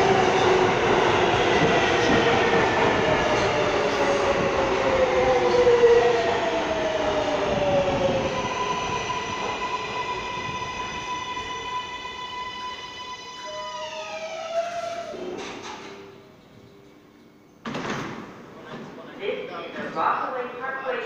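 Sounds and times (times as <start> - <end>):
subway train motor whine: 0.0 - 15.2
rail and wheel noise: 0.0 - 17.6.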